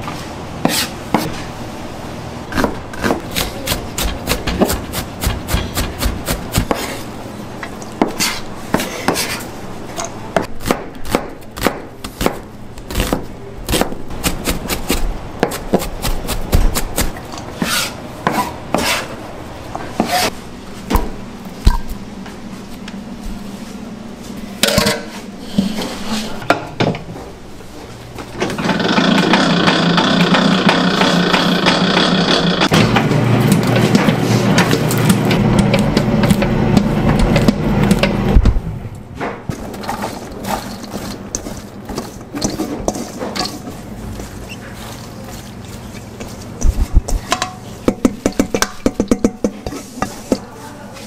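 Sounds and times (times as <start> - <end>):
low machine hum: 0.0 - 51.0
knife chopping on cutting board: 2.5 - 7.0, 10.4 - 19.0.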